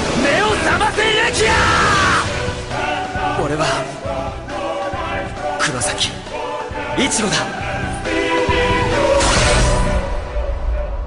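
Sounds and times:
music: 0.0 - 11.0.

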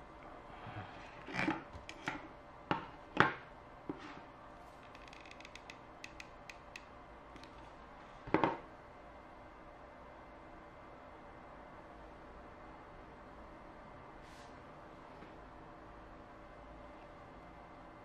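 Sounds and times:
objects knocking on wooden table: 8.3 - 8.6.

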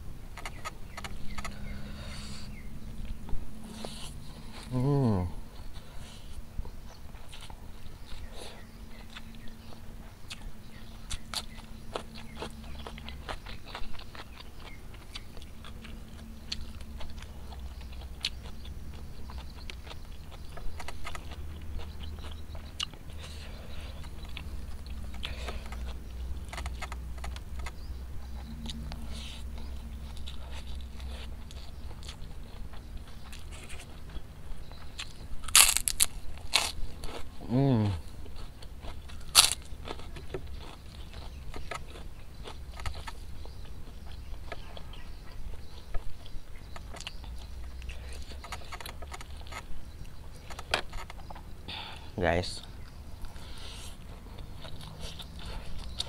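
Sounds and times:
close-up chewing: 0.0 - 56.0
crunching cracker bites: 29.9 - 37.3, 38.3 - 51.4.

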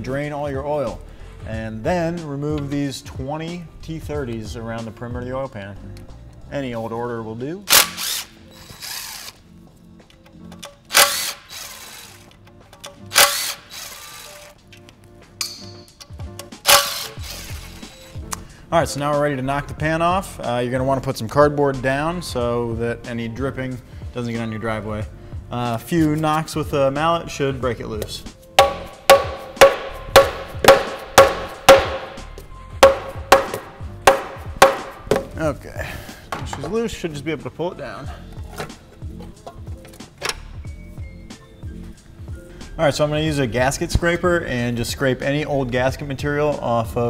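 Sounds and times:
background music: 0.0 - 47.0
cordless drill spinning bolts: 7.7 - 9.4, 10.6 - 14.6, 16.7 - 18.0
rubber mallet knocking metal: 28.6 - 35.4.

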